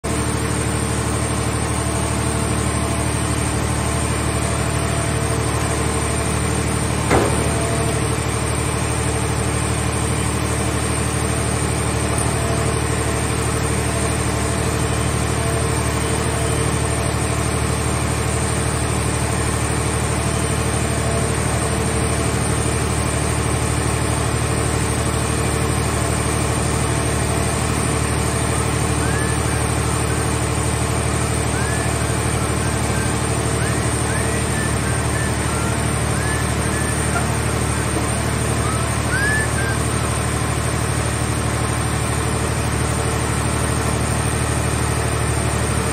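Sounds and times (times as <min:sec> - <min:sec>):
hydraulic power unit droning: 0:00.0 - 0:45.9
sharp knock: 0:07.1 - 0:07.9.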